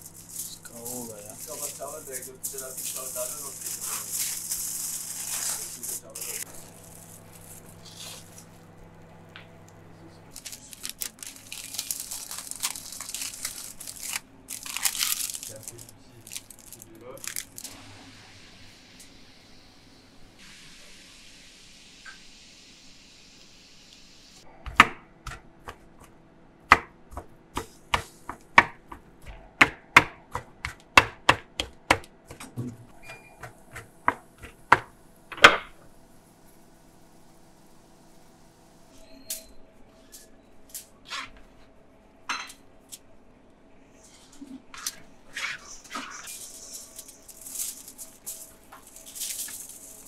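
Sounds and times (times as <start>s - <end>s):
crinkling and tearing: 0.0s - 9.3s, 10.3s - 17.7s, 46.3s - 50.0s
steady low hum: 0.0s - 20.4s
knife chopping on cutting board: 24.6s - 35.7s.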